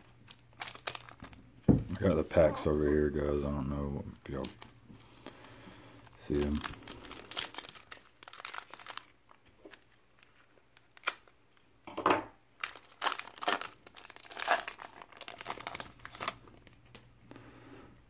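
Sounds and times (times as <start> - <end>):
foil wrapper tearing and crinkling: 0.2 - 1.4, 6.1 - 11.4, 12.6 - 17.1.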